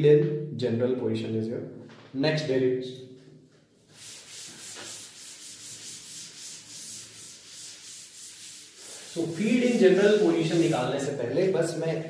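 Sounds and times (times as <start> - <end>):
eraser rubbing on chalkboard: 3.9 - 10.9.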